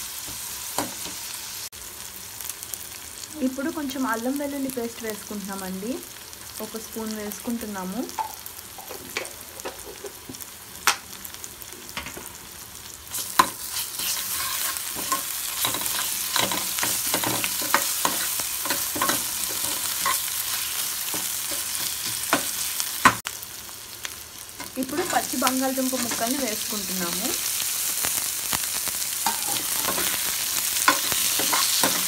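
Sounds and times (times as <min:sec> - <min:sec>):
food sizzling in hot oil: 0:00.0 - 0:32.0
steel spoon scraping a pan: 0:13.1 - 0:22.7, 0:29.2 - 0:32.0.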